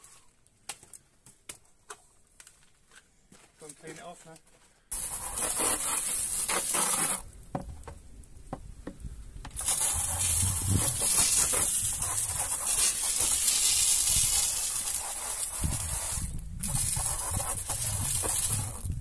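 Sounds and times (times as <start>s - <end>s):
water from hose splashing into bucket: 5.0s - 7.2s, 9.5s - 19.0s.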